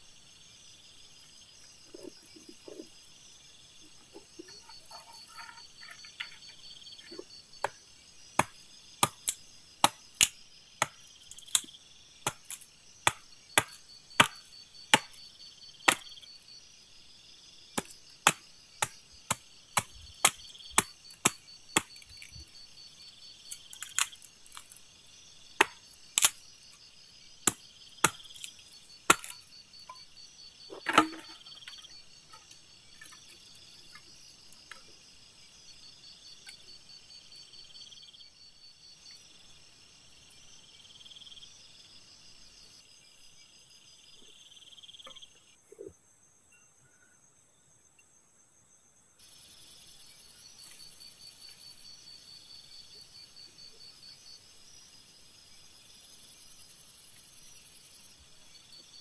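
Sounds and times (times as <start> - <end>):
crickets chirping: 0.0 - 59.0
wood chopping knocks: 8.4 - 11.0, 12.3 - 15.2, 29.1 - 30.0, 30.7 - 31.8.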